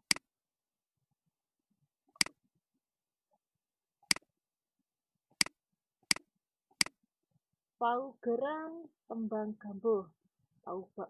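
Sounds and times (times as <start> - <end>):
computer mouse clicking: 2.2 - 2.4.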